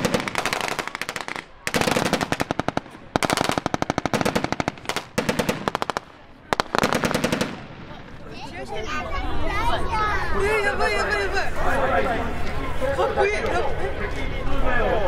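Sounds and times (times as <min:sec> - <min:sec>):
rapid automatic gunfire: 0:00.0 - 0:07.8.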